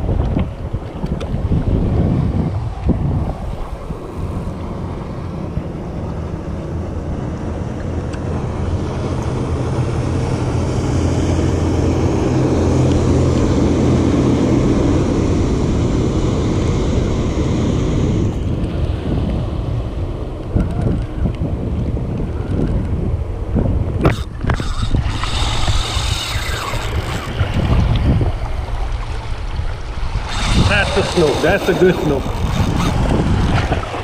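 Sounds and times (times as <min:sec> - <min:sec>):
motorboat engine droning: 0:00.0 - 0:34.0
wind buffeting microphone: 0:00.0 - 0:34.0.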